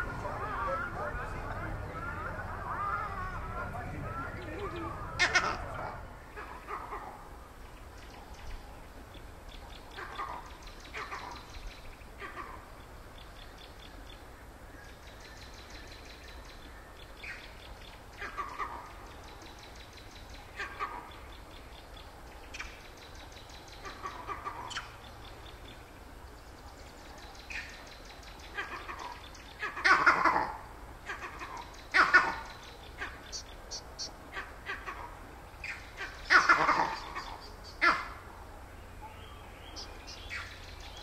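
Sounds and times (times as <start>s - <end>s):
monkey calls: 0.0s - 7.3s, 9.9s - 11.5s, 12.2s - 12.7s, 18.1s - 19.4s, 20.4s - 21.3s, 23.8s - 25.0s, 28.4s - 38.2s.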